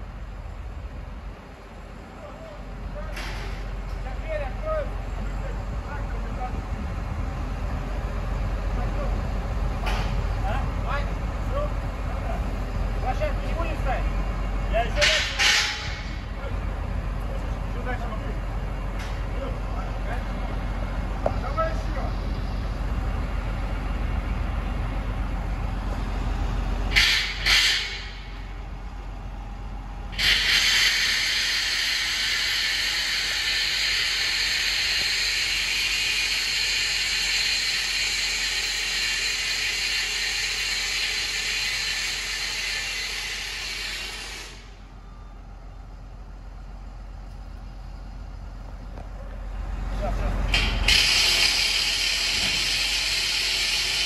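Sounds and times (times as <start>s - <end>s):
diesel engine idling: 0.0s - 54.0s
compressed air hissing: 26.9s - 28.4s, 30.1s - 44.8s.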